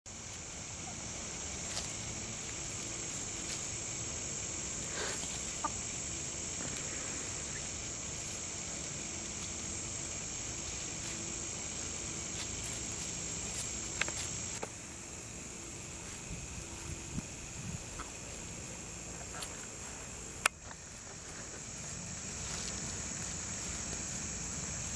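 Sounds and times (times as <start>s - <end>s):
steady high-pitched hiss: 0.1s - 24.9s
hens clucking softly: 4.8s - 6.0s.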